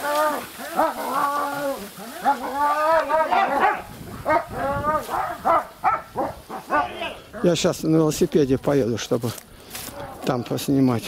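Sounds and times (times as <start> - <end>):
dogs barking: 2.2 - 7.5.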